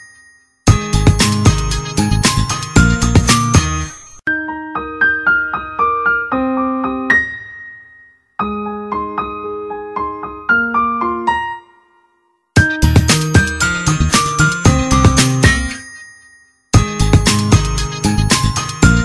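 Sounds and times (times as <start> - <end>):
solo piano notes: 4.3 - 12.8.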